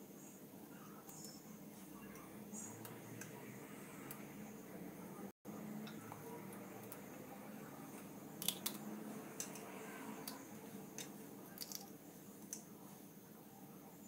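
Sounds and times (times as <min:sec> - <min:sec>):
low steady hum: 0:00.0 - 0:14.0
eggshell clicks and squishing: 0:08.4 - 0:08.8.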